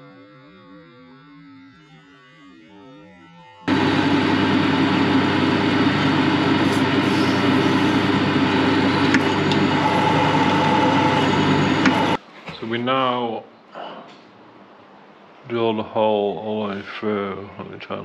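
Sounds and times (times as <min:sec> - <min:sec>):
metal lathe drilling steel: 0:03.7 - 0:12.2.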